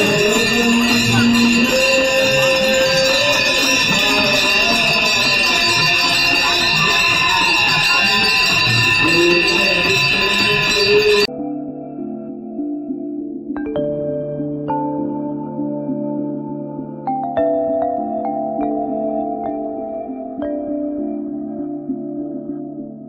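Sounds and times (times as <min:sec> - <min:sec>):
crowd voices: 0:00.0 - 0:11.3
bells ringing: 0:00.0 - 0:11.7
singing: 0:00.0 - 0:12.0
soft background music: 0:10.5 - 0:23.0.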